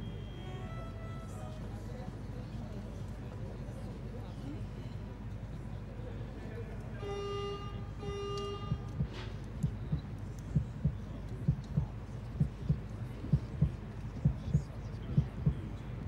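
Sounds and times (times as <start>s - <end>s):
electronic horn beeps: 0.0s - 1.4s, 7.0s - 9.2s
heartbeat sound effect: 8.6s - 15.7s.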